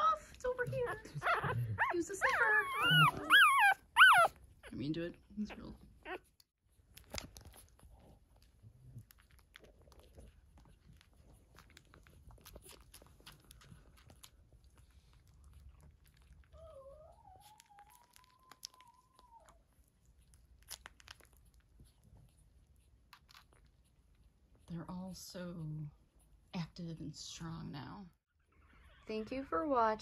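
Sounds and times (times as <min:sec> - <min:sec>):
puppy whining: 0:00.0 - 0:04.8, 0:05.5 - 0:24.2
puppies suckling wet clicking: 0:06.1 - 0:24.8.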